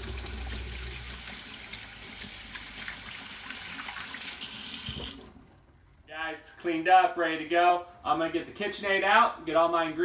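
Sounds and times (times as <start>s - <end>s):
faucet running into metal sink: 0.0s - 5.4s.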